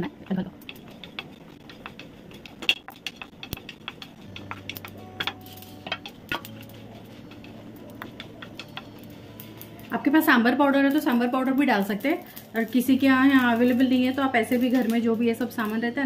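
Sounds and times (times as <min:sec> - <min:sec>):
wooden spatula stirring lentils in pan: 0:00.2 - 0:16.0
spatula knocking on pan: 0:00.6 - 0:09.0.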